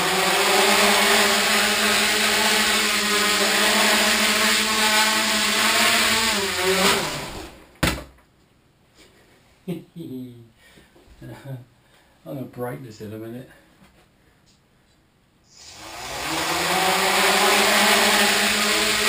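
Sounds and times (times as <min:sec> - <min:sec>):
drone motors whirring: 0:00.0 - 0:07.6, 0:15.6 - 0:19.0.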